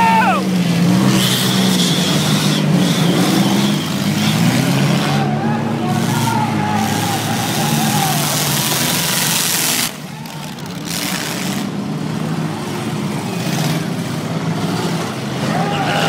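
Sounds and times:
race car engines revving: 0.0 - 16.0.

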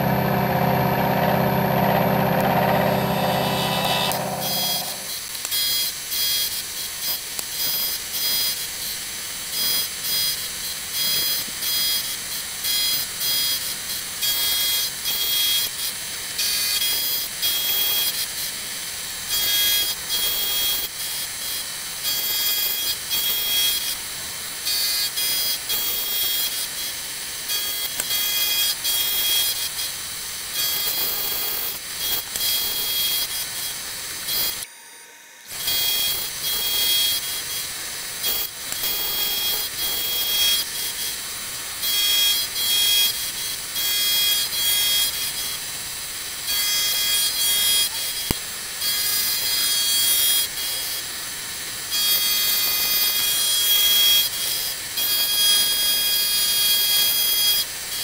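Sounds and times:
milling cutter whine: 0.0 - 6.7, 35.5 - 51.2.

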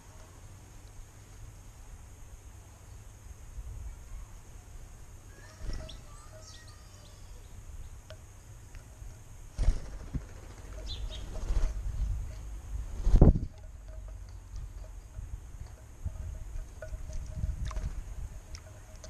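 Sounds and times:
high bird chirps: 5.3 - 8.0, 10.6 - 12.2
wings flapping: 9.5 - 14.0
wind rumble on microphone: 9.6 - 19.0.

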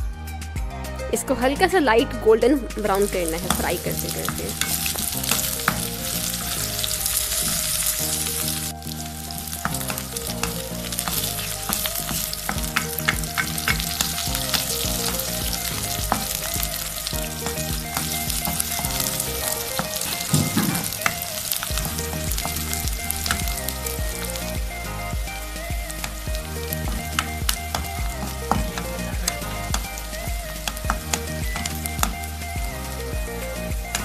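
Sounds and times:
onions sizzling in oil: 2.8 - 34.0
spatula scraping pan: 3.3 - 24.3.

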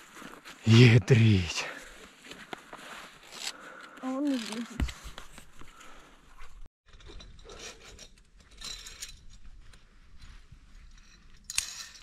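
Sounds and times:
metallic clicking and jangling of gear: 6.9 - 9.4.

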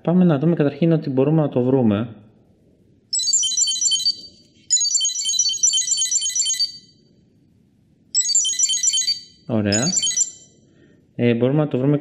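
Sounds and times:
high-pitched buzzer beeping: 8.2 - 10.6.

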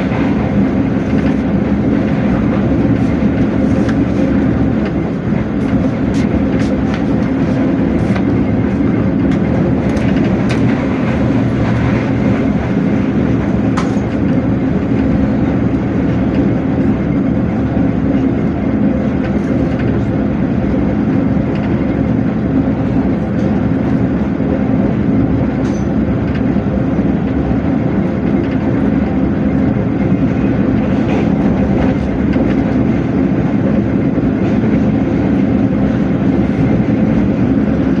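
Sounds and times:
train rumble and rail noise: 0.0 - 38.0.

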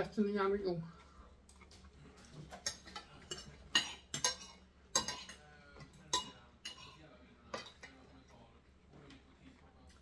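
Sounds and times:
forks clinking on plates: 2.2 - 8.0.

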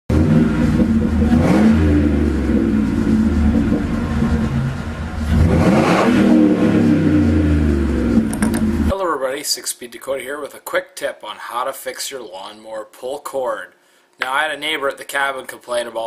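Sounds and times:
engine running and revving: 0.1 - 8.9.

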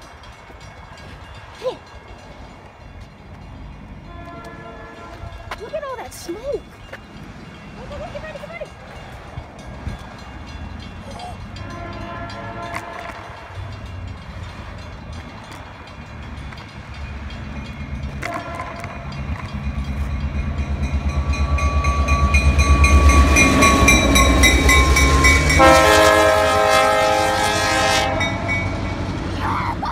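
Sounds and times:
diesel locomotive rumbling: 0.0 - 29.9
locomotive horn chord: 4.0 - 5.5, 11.6 - 13.4, 18.2 - 19.2, 21.1 - 29.1.

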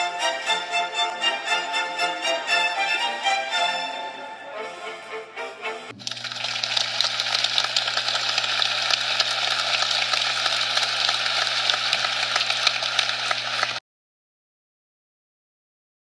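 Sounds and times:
music: 0.0 - 6.0
harsh crackling static: 6.0 - 13.8.

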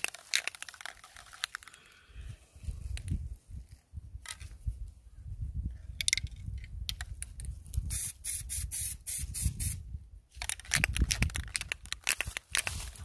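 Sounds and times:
spray can ball rattling: 0.0 - 1.7, 7.8 - 9.8, 10.4 - 12.8.

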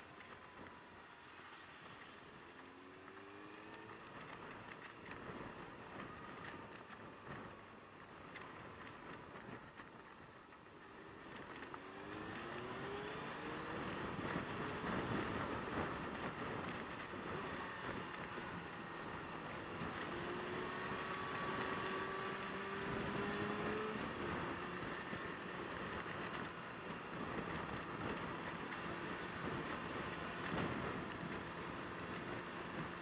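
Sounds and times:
wind and road noise: 0.0 - 33.0
motorcycle engine revving: 11.5 - 33.0.

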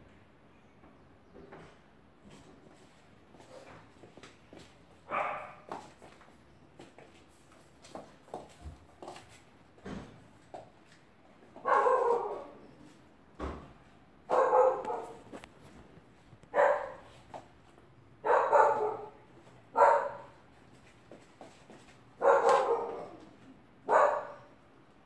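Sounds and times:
dog barking: 5.1 - 5.7, 11.6 - 12.6, 14.3 - 15.3, 16.5 - 17.1, 18.2 - 20.4, 22.2 - 23.2, 23.9 - 24.5.

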